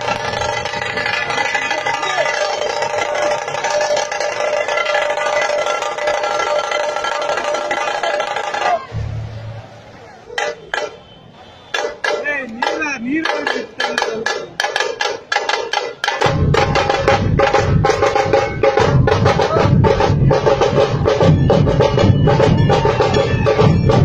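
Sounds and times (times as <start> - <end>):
stick drum strikes: 10.4 - 11.0, 11.7 - 20.8
heavy barrel drum beat: 11.7 - 24.0.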